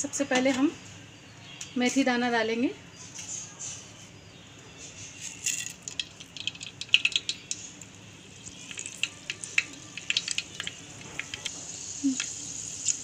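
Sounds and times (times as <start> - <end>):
faint frying hiss: 5.2 - 13.0
seeds popping in hot oil: 5.2 - 13.0.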